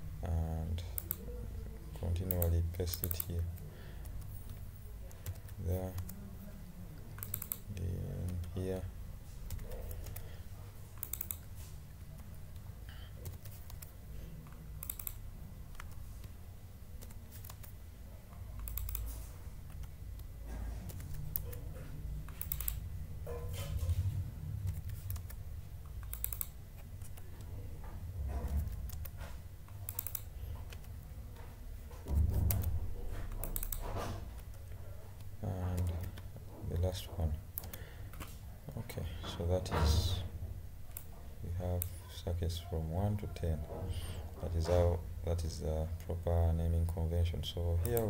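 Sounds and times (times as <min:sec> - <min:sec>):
low steady hum: 0:00.0 - 0:48.0
mouse clicks: 0:01.0 - 0:01.2, 0:07.2 - 0:07.6, 0:11.0 - 0:11.5, 0:14.8 - 0:16.4, 0:18.6 - 0:19.1, 0:22.3 - 0:22.8, 0:24.7 - 0:27.5, 0:28.6 - 0:30.9, 0:33.3 - 0:33.8
keyboard keystrokes: 0:11.0 - 0:11.5, 0:14.8 - 0:16.4, 0:18.6 - 0:21.6, 0:24.6 - 0:27.5, 0:28.4 - 0:31.0, 0:32.1 - 0:36.3.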